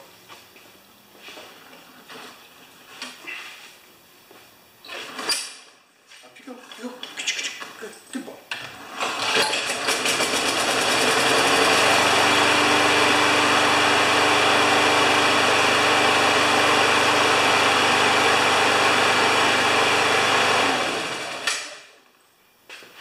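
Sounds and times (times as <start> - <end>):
lawn mower engine running: 8.7 - 21.7.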